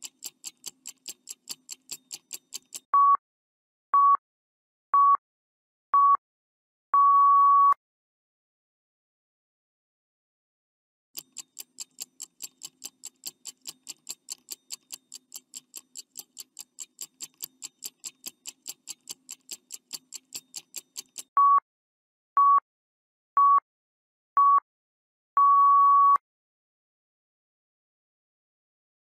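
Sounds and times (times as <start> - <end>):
clock ticking rapidly: 0.0 - 2.9, 11.2 - 21.4
short beeps: 3.0 - 3.2, 7.0 - 7.8, 21.4 - 21.6, 25.4 - 26.2
long beep: 7.0 - 7.8, 25.4 - 26.2.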